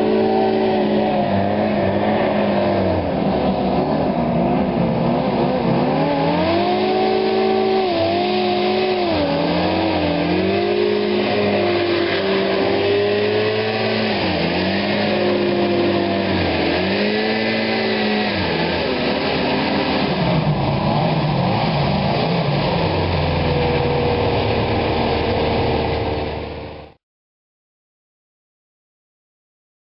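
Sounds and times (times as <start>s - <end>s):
hovercraft engine and ducted fan: 0.0s - 27.0s.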